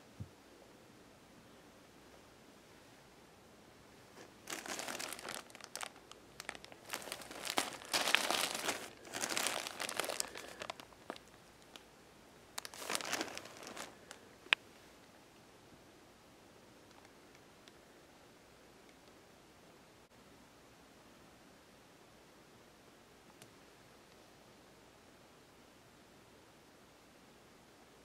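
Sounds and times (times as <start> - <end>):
plastic packaging crinkling: 4.2 - 11.8, 12.6 - 14.6.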